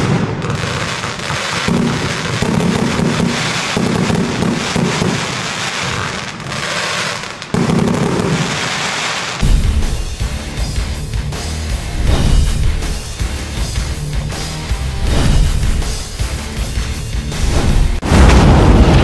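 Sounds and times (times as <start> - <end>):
firework pops and crackles: 0.0 - 9.6
fireworks aerial bursts: 0.0 - 19.0
firework launch thumps: 12.0 - 13.0, 15.0 - 16.1.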